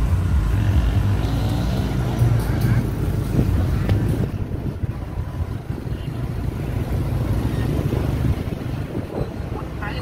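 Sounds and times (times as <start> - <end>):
motorbike engine rumble: 0.0 - 9.8
wind on microphone: 3.1 - 10.0.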